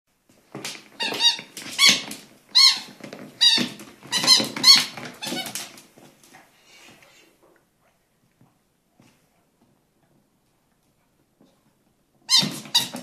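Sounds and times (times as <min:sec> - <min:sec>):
rubber squeaky toy squeaking: 0:01.0 - 0:05.7, 0:12.3 - 0:13.0.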